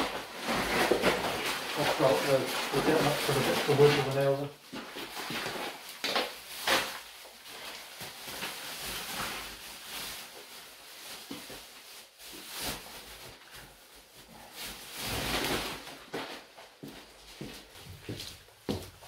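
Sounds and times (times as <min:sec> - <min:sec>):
rubble dropped into plastic bag: 0:00.0 - 0:07.0
plastic bag rustling: 0:00.0 - 0:19.0.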